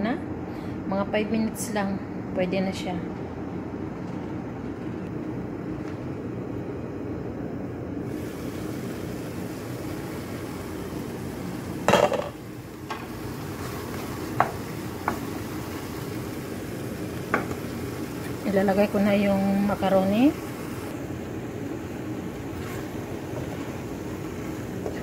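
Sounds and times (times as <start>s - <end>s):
steady background hum: 0.0s - 25.0s
pot clattering: 11.8s - 13.0s.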